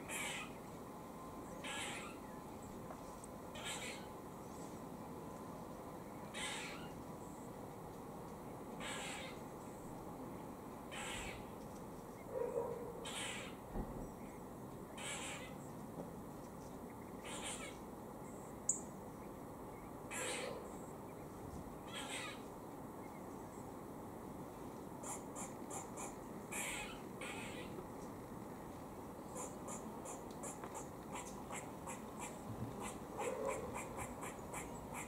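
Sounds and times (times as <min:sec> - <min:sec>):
squirrel raspy warning call: 0:00.0 - 0:00.6, 0:01.6 - 0:02.3, 0:03.5 - 0:04.1, 0:06.3 - 0:06.9, 0:08.8 - 0:09.4, 0:10.9 - 0:11.5, 0:13.0 - 0:13.6, 0:15.0 - 0:15.6, 0:17.2 - 0:17.8, 0:20.1 - 0:20.7, 0:21.8 - 0:22.4, 0:25.0 - 0:27.8, 0:29.3 - 0:35.0.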